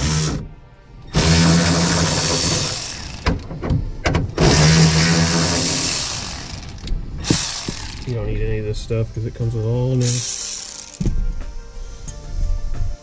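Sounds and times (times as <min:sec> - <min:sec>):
electric ratchet running: 0:01.2 - 0:03.5, 0:04.4 - 0:08.2, 0:10.0 - 0:11.2.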